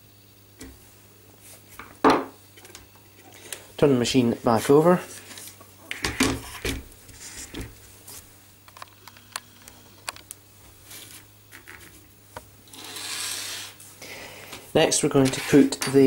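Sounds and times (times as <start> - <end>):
scraping rustle: 6.4 - 8.3, 15.0 - 16.0.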